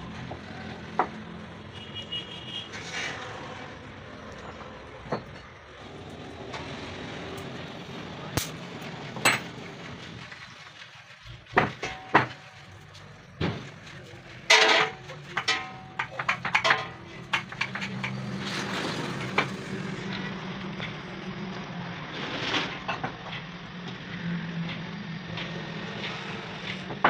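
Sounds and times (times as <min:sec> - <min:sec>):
metal parts clanking: 0:08.4 - 0:09.6, 0:11.4 - 0:13.0, 0:13.6 - 0:18.2.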